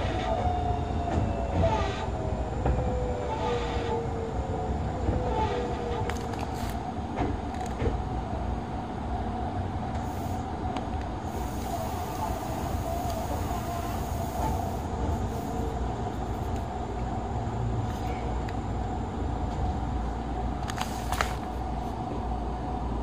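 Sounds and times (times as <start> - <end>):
train wheel and rail rumble: 0.0 - 23.0
hiss: 10.0 - 10.4, 11.2 - 15.6.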